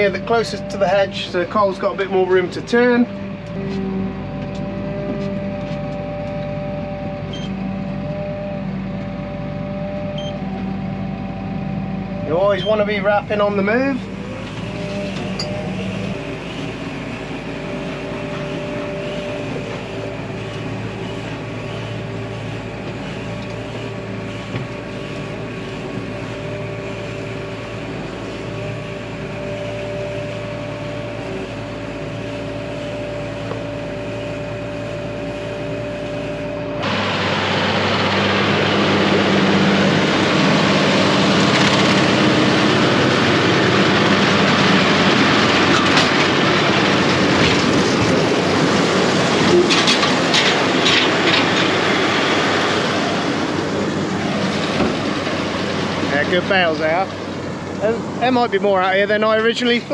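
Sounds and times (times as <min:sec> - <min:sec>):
bale wrapper whine: 0:00.0 - 0:59.9
tractor engine running: 0:00.0 - 0:59.9
farm machinery rattling: 0:12.6 - 0:59.9.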